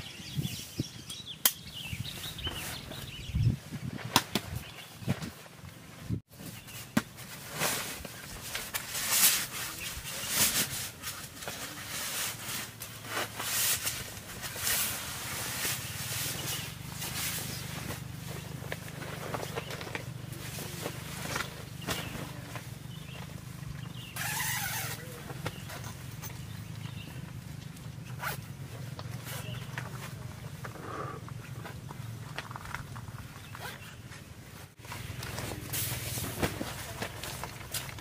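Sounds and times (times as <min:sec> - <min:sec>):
sleeping bags rustling: 0:01.7 - 0:38.0
nylon rustling: 0:24.2 - 0:25.9.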